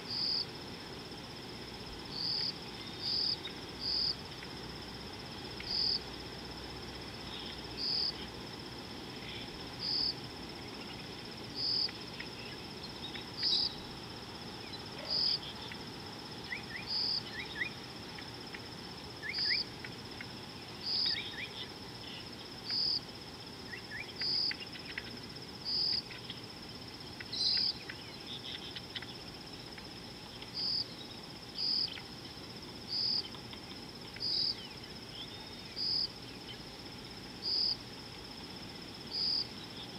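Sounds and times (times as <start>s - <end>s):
insect short chirps: 0.0s - 0.6s, 2.0s - 8.4s, 9.0s - 38.3s, 39.0s - 39.9s
insects trilling: 0.0s - 39.9s
low outdoor hiss: 0.0s - 39.9s
faint bird chirps: 11.6s - 13.8s, 16.4s - 17.8s, 19.2s - 19.6s, 20.6s - 23.0s, 27.2s - 29.7s.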